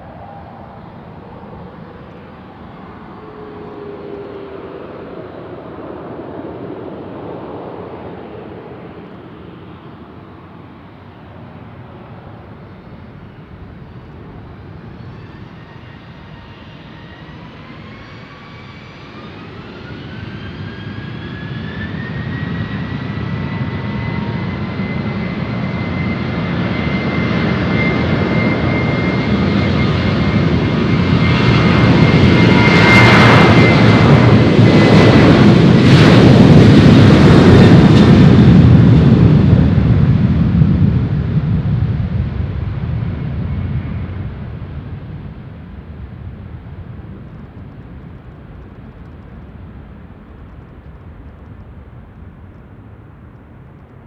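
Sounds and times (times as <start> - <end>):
jet engine roar: 0.0 - 54.0
jet engine whine: 0.0 - 54.0.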